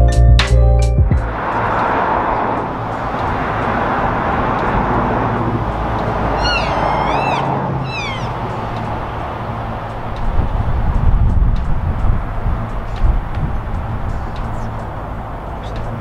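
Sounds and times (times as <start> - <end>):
elk calling: 5.8 - 9.2.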